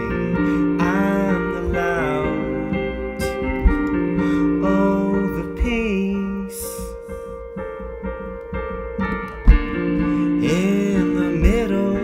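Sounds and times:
electric piano chords: 0.0s - 12.0s
sharp low thump: 3.3s - 4.1s, 7.7s - 10.0s.

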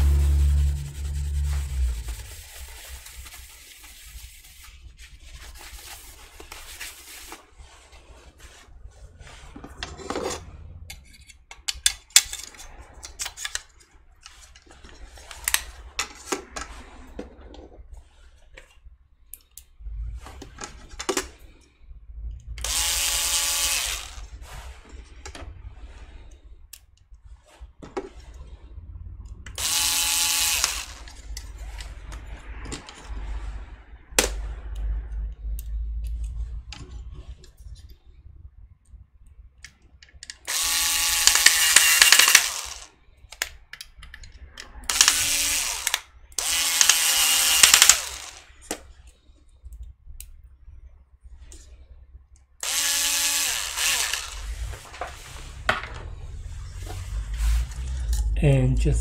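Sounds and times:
electric screwdriver whirring: 22.6s - 24.3s, 29.6s - 31.2s, 40.4s - 42.9s, 44.9s - 48.5s, 52.6s - 54.7s.

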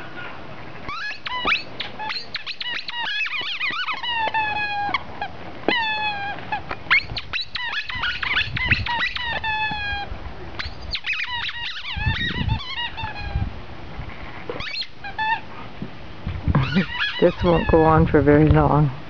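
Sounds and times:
squeaky rubber ball squeaking: 0.9s - 13.4s, 14.5s - 15.4s, 16.6s - 17.8s.

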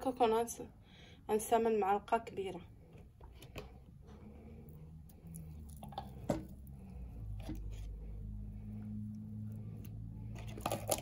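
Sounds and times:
steady low hum: 2.4s - 11.0s.

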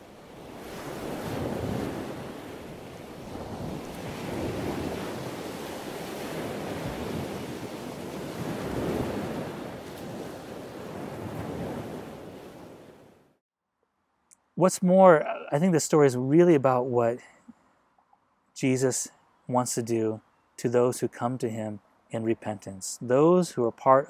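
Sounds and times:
ocean waves washing in: 0.0s - 13.4s.

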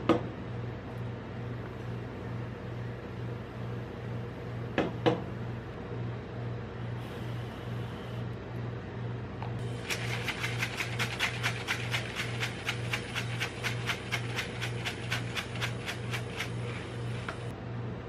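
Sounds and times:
steady low hum: 0.0s - 18.0s
sprinkles rattling in shaker: 9.7s - 16.9s.

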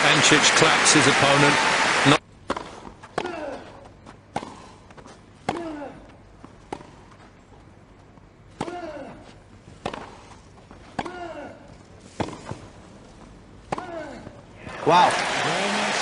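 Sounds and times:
tennis racket hitting ball: 2.4s - 3.7s, 4.3s - 4.8s, 5.4s - 5.9s, 8.6s - 9.2s, 9.8s - 11.3s, 12.1s - 12.6s, 13.7s - 14.2s.

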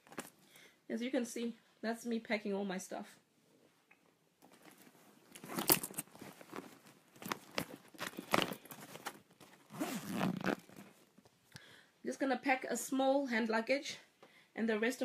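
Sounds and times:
bags and clothes rustling: 0.0s - 0.5s, 4.4s - 11.2s.

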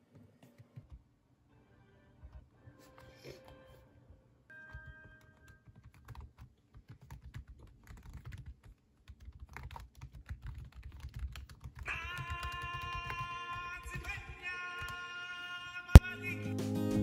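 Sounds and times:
laptop keyboard typing: 4.6s - 15.0s
music: 16.0s - 17.0s.

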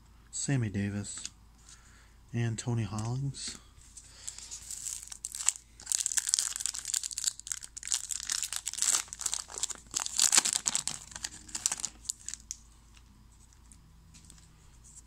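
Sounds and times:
wrapper tearing and crinkling: 4.2s - 12.6s.

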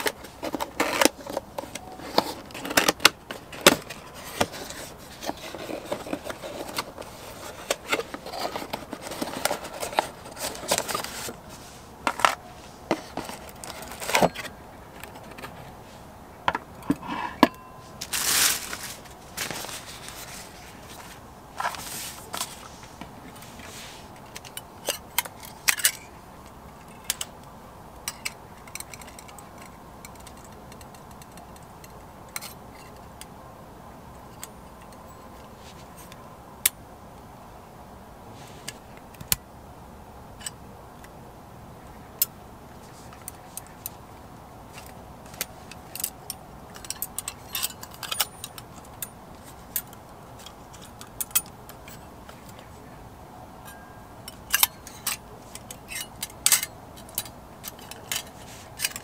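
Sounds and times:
cloth pouch rustling: 17.9s - 24.1s
light metal clicks and clinks: 28.0s - 33.3s, 44.8s - 52.6s, 53.6s - 59.0s.

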